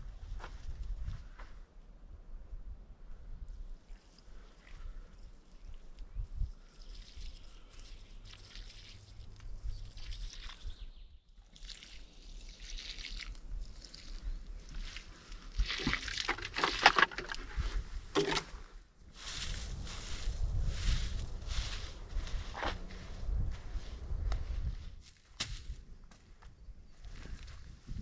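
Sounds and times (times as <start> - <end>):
water trickling onto soil: 3.8 - 10.8, 11.4 - 17.4.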